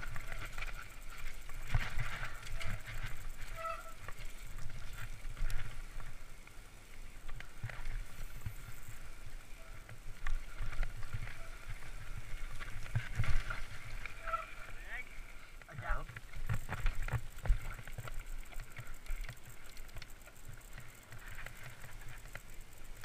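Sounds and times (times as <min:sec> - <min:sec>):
bike knocking and rattling: 0:00.0 - 0:14.9, 0:15.5 - 0:23.0
bike tyres rumbling over dirt: 0:00.0 - 0:23.0.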